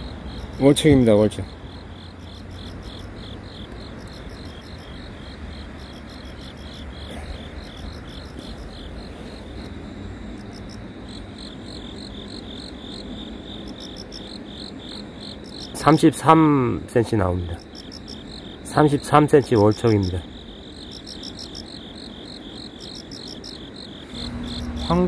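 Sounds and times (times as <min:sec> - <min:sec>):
insects chirping: 0:00.0 - 0:25.0.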